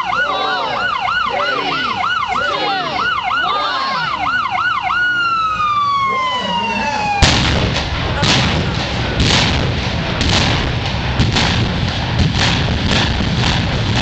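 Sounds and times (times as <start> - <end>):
continuous low rumble: 0.0 - 14.0
explosive demolition blasts: 7.1 - 14.0.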